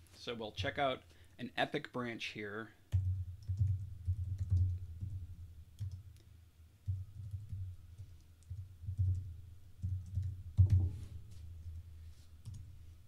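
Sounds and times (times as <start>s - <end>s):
typing on computer keyboard: 2.9s - 5.2s, 5.8s - 6.0s, 6.9s - 10.8s, 12.4s - 12.6s.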